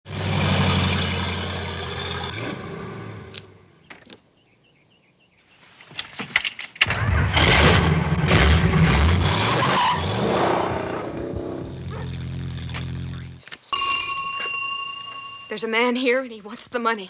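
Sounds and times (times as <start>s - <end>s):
car engine running: 0.1s - 3.4s, 10.0s - 13.4s
tyre noise on pavement: 9.6s - 13.4s.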